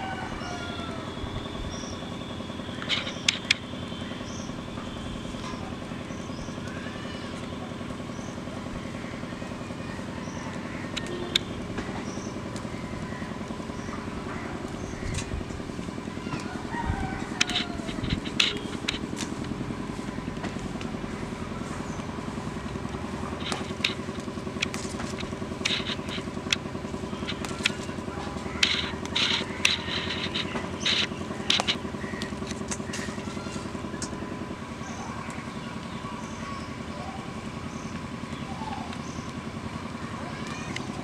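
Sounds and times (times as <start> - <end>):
engine drone: 0.0 - 41.0
leaves snapping and rustling: 17.2 - 21.0, 23.2 - 34.2.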